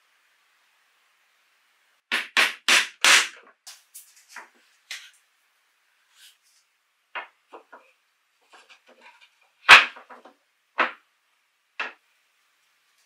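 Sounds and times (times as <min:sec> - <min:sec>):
wooden knocks on tabletop: 0:07.2 - 0:07.9, 0:09.7 - 0:11.0, 0:11.8 - 0:12.0.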